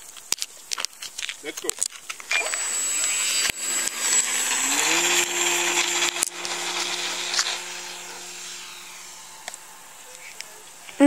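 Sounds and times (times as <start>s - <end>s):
model plane motor whining: 2.2s - 11.0s.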